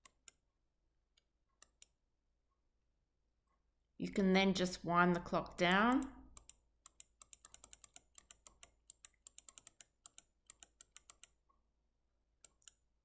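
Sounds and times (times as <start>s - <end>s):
computer mouse clicks: 0.0s - 0.4s, 1.6s - 2.0s, 5.5s - 11.4s, 12.4s - 12.8s.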